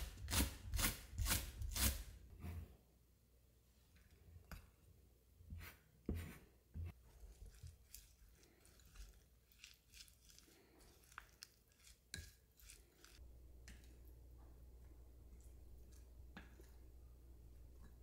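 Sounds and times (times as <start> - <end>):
squelching and crunching mix: 6.9 - 14.1.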